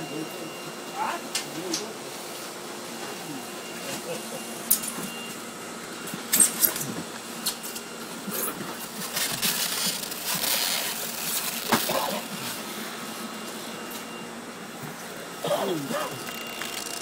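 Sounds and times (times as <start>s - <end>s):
faint hum: 0.0s - 17.0s
cardboard rustling: 8.8s - 12.4s.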